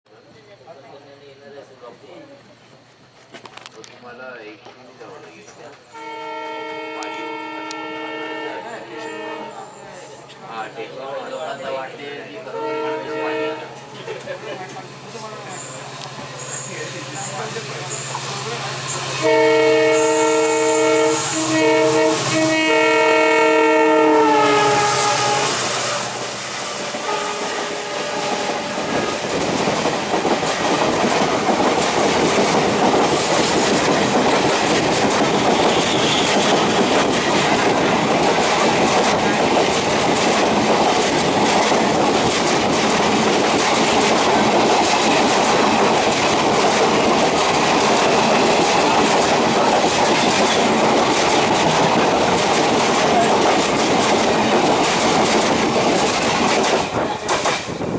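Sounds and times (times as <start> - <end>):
train coaches rushing past: 2.5 - 57.9
locomotive horn: 5.9 - 9.8, 12.5 - 13.9, 19.2 - 28.9, 35.5 - 36.9
wheels clacking over rail joints: 27.0 - 57.9.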